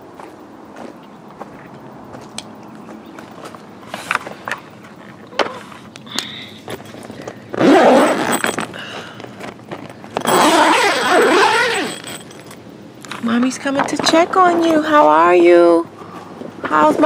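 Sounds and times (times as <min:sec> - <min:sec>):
light footsteps: 0:00.0 - 0:05.2.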